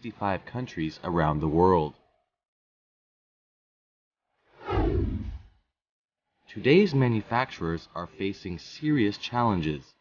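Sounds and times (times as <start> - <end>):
deep rumble: 4.6 - 5.5
whoosh sound effect: 4.6 - 5.6.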